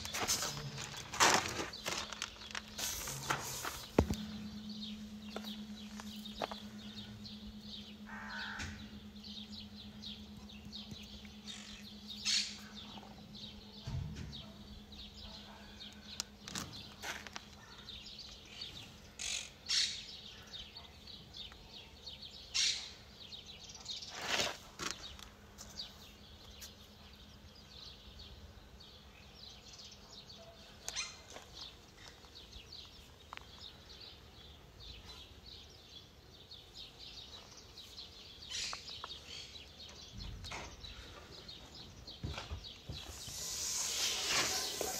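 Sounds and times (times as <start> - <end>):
low steady hum: 0.0 - 22.4
birds chirping: 0.0 - 44.9
bird caws: 8.0 - 9.0.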